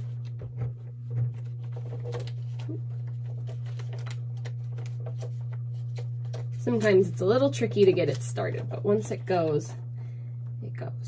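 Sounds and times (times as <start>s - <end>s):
laminator humming: 0.0s - 11.0s
plastic pouch clicking and rustling: 1.7s - 6.6s.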